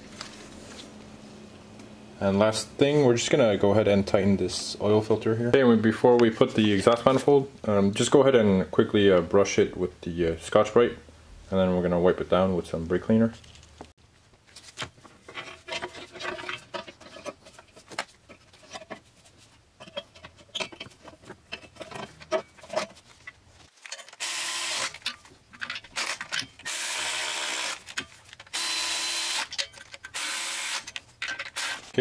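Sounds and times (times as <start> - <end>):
metal parts being handled: 14.6 - 24.2, 24.9 - 26.7, 29.5 - 30.2, 30.8 - 32.0.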